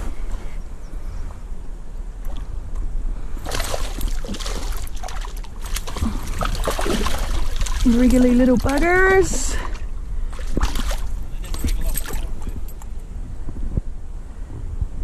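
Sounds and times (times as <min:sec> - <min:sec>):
steady low rumble: 0:00.0 - 0:15.0
water sloshing and trickling: 0:02.2 - 0:13.1.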